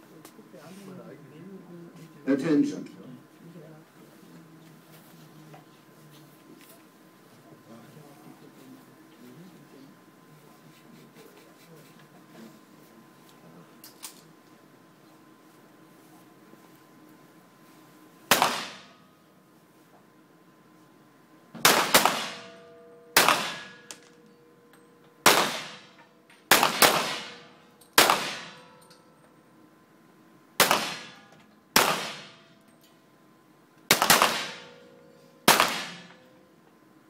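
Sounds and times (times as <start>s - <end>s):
pistol shots with ringing echo: 18.3s - 19.0s, 21.6s - 24.2s, 25.2s - 28.9s, 30.6s - 32.5s, 33.9s - 36.2s.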